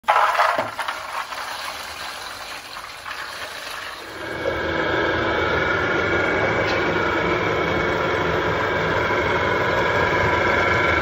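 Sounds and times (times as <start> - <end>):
nuts pouring onto metal tray: 0.0 - 4.0
machine motor humming and whining: 4.1 - 11.0.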